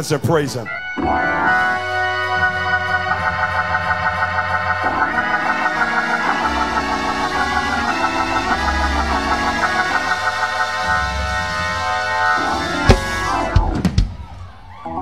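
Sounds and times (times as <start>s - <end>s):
organ playing chords: 0.6s - 14.2s
light steady beat: 2.8s - 14.2s.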